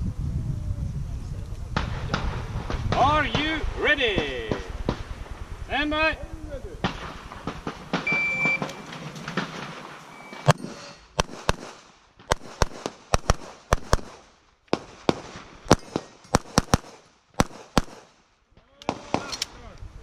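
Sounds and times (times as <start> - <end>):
pistol shots: 6.8 - 18.2
shot timer beep: 8.1 - 8.7.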